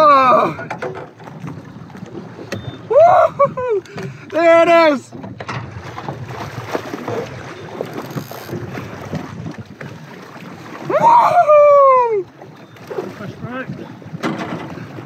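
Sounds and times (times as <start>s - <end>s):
choppy water around kayak: 0.0s - 15.0s
person whooping: 2.9s - 3.8s, 10.8s - 12.3s.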